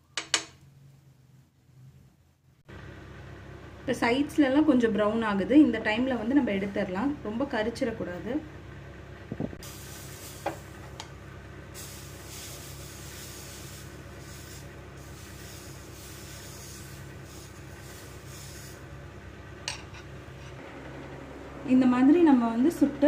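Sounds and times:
steady low hum: 0.6s - 23.0s
batter sizzling on a hot griddle: 9.6s - 11.0s, 11.6s - 19.2s
ghee bubbling: 9.6s - 19.6s.

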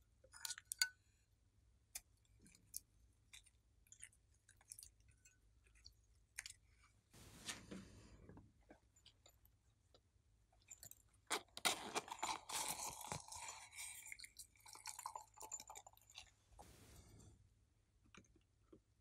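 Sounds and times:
rustling and scraping: 7.2s - 8.4s, 16.6s - 17.5s.

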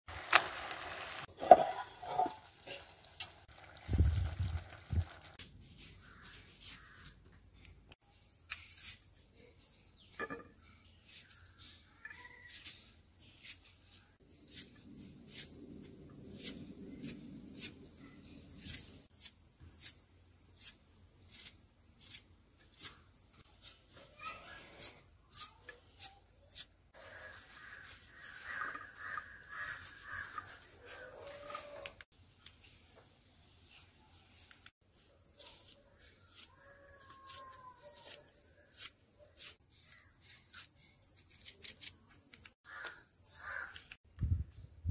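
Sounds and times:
crows cawing: 27.2s - 31.9s, 42.6s - 43.9s
knife cutting vegetables: 35.4s - 42.3s.

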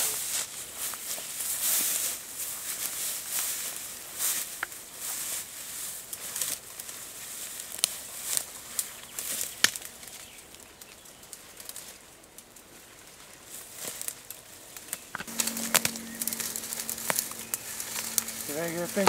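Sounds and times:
leaves and branches rustling: 0.0s - 19.0s
steady low hum: 15.3s - 19.0s.

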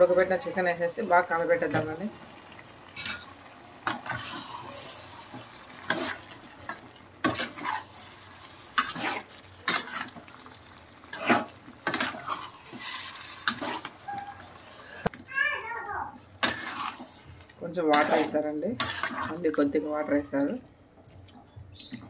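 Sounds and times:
gravy sizzling: 0.0s - 22.0s
metal spatula scraping frying pan: 3.0s - 6.3s, 7.2s - 10.3s, 11.0s - 14.9s, 16.4s - 19.6s.

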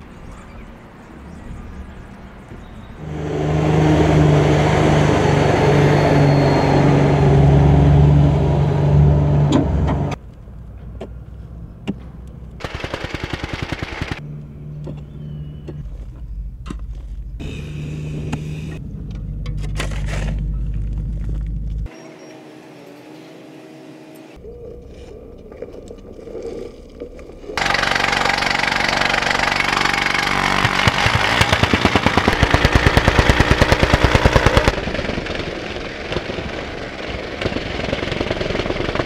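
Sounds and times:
low engine hum: 14.1s - 22.0s
heavy engine running: 27.6s - 39.0s.

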